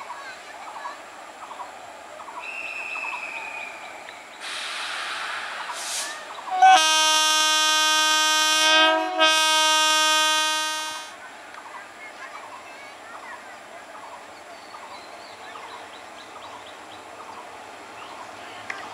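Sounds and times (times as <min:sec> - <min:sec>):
air hiss: 0:04.4 - 0:06.4
locomotive air horn blasts: 0:06.5 - 0:11.2.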